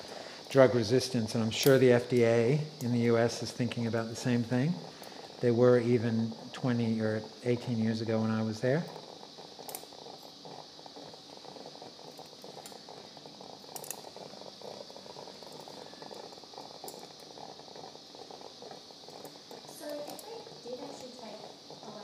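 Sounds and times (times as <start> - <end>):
crackling hiss: 0.0 - 22.0.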